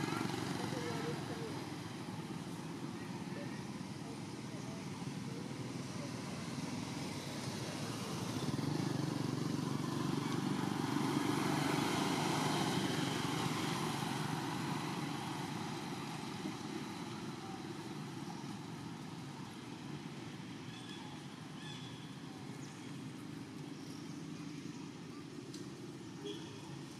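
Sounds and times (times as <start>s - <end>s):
motor vehicle passing: 0.0s - 3.0s, 4.2s - 25.0s.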